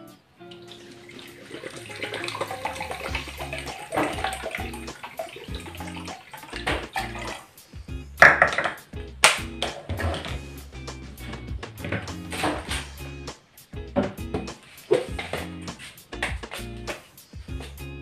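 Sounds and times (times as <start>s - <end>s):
liquid pouring from bottle: 0.6s - 7.5s.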